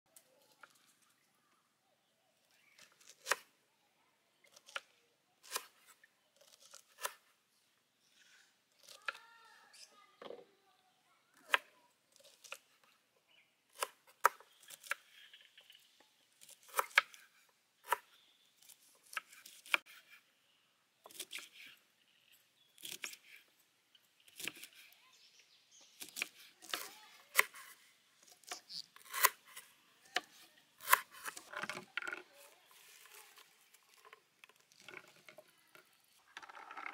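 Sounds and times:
knife chopping on wooden board: 0:30.2 - 0:31.8.

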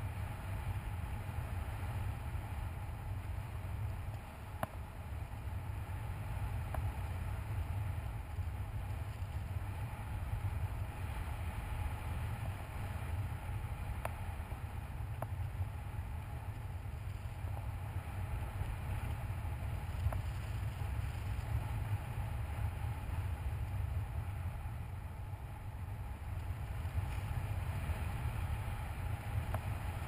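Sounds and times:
faint ticks: 0:19.8 - 0:22.0.

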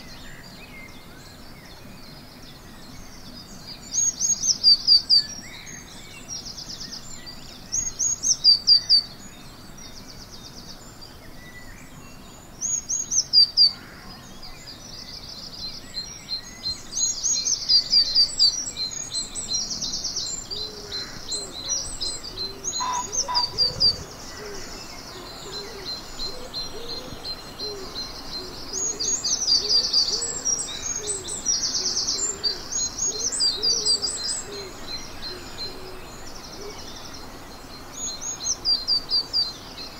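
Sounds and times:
faint birdsong: 0:00.0 - 0:39.9
nearby bird singing loud: 0:00.0 - 0:39.9.

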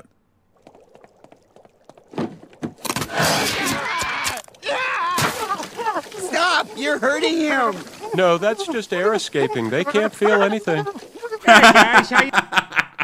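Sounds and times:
man yelling and screaming: 0:03.4 - 0:11.6.

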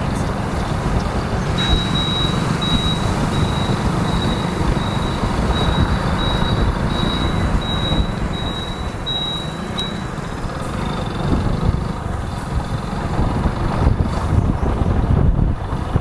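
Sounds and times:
motorcycle engine running: 0:00.0 - 0:16.0
wind on microphone: 0:00.0 - 0:16.0
high repeating beep: 0:01.6 - 0:10.1.

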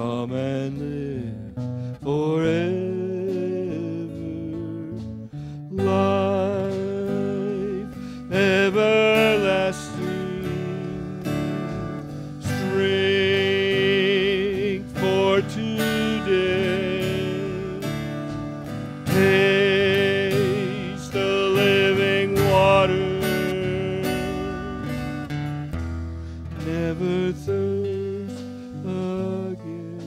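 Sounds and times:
acoustic guitar: 0:00.0 - 0:30.0
electric guitar: 0:00.0 - 0:30.0
drum kit: 0:04.2 - 0:30.0.

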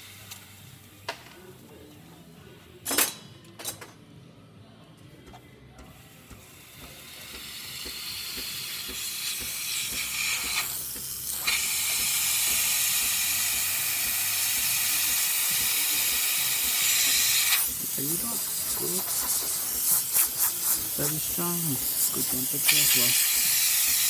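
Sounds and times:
steam wand hissing: 0:06.3 - 0:24.0.

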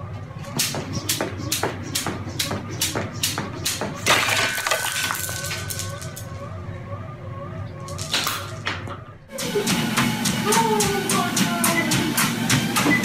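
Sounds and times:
jump rope slapping concrete: 0:00.6 - 0:04.1.

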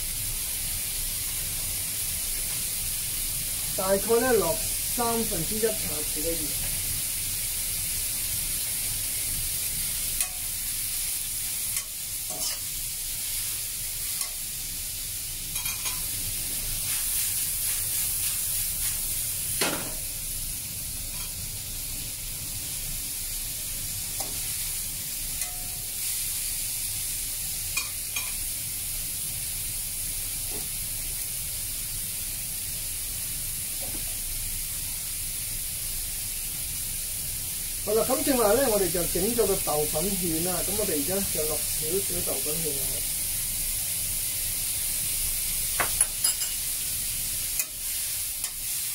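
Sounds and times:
food sizzling in a pan: 0:00.0 - 0:48.9
spatula scraping a pan: 0:11.8 - 0:12.7.

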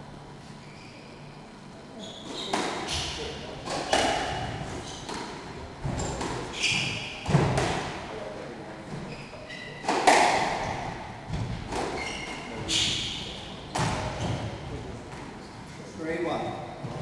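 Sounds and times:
shoe squeaks: 0:00.6 - 0:01.3, 0:02.0 - 0:05.2, 0:06.0 - 0:07.3, 0:09.0 - 0:11.0, 0:11.7 - 0:14.5
squash ball hits: 0:02.5 - 0:08.0, 0:09.8 - 0:10.7, 0:12.6 - 0:14.6.

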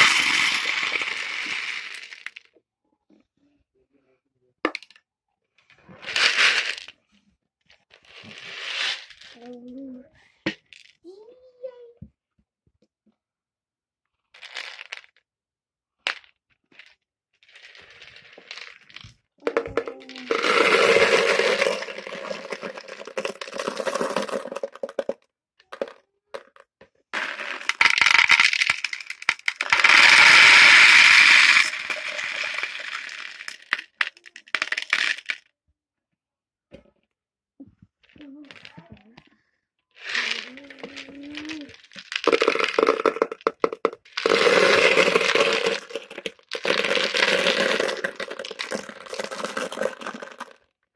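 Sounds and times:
beads rattling into a bowl: 0:00.0 - 0:02.5, 0:05.9 - 0:07.0, 0:08.0 - 0:09.5, 0:14.3 - 0:15.2, 0:16.0 - 0:26.6, 0:27.2 - 0:35.5, 0:40.0 - 0:50.7.

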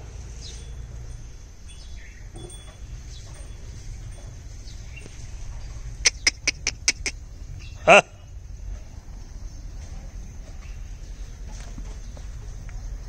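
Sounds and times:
faint bird chirps: 0:00.4 - 0:08.4.

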